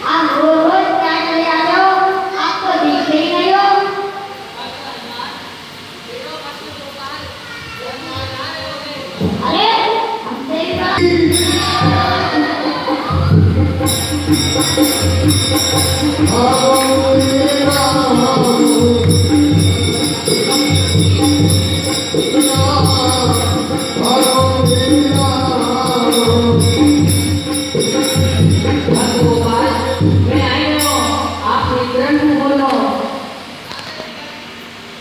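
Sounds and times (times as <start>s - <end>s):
jingling percussion rhythm: 10.7s - 32.6s.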